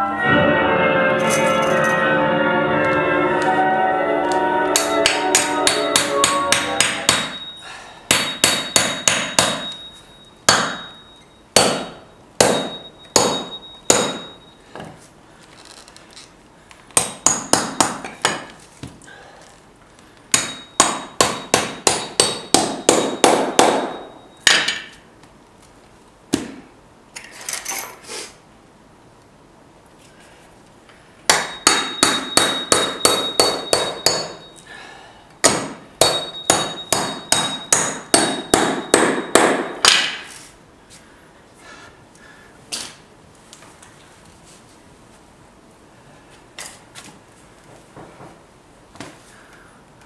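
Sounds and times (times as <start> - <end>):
hammer striking nails: 4.8 - 7.5, 8.1 - 9.8, 10.5 - 11.0, 11.6 - 14.4, 17.0 - 18.6, 20.3 - 25.0, 31.3 - 34.5, 35.4 - 40.3.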